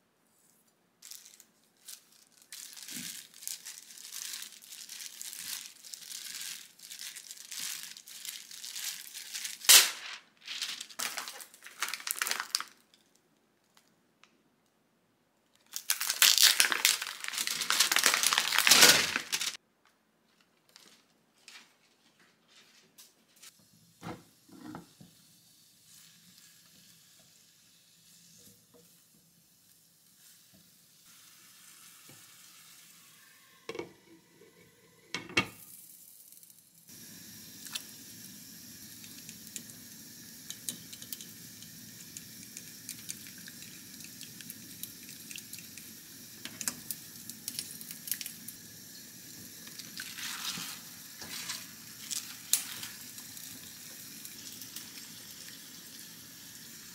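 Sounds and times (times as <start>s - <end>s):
spinach rustling into pot: 1.0s - 13.0s, 15.7s - 19.6s, 49.6s - 53.5s
stir-frying in a pan: 23.5s - 33.8s, 36.9s - 56.9s
broth simmering bubbling hiss: 23.5s - 56.9s.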